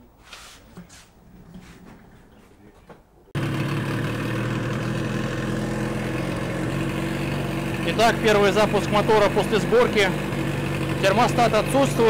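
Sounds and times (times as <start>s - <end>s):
outboard motor running: 3.4s - 12.0s.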